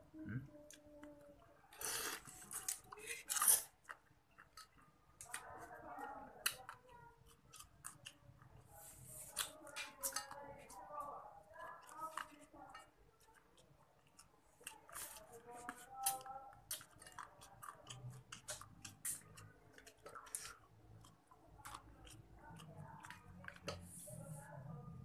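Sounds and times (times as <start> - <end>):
man chewing with mouth smacks: 11.6 - 23.9.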